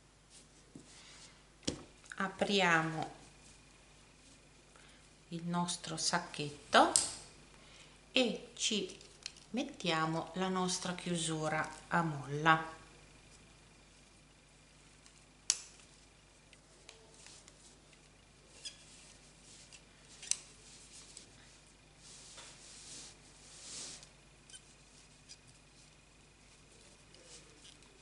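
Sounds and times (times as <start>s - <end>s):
soft rustling of cord: 0.2s - 1.4s, 2.8s - 5.2s, 13.2s - 28.0s.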